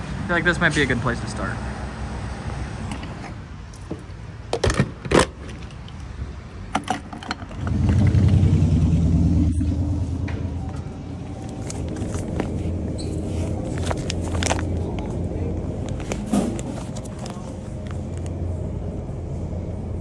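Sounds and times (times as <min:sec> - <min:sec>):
steady low hum: 0:07.7 - 0:20.0.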